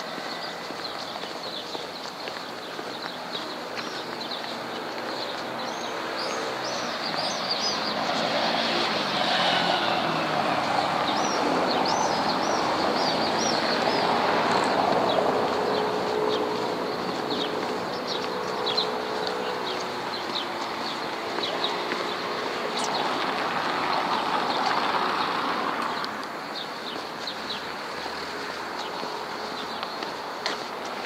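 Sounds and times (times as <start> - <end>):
birds chirping: 0.0 - 31.0
passing engine: 0.0 - 31.0.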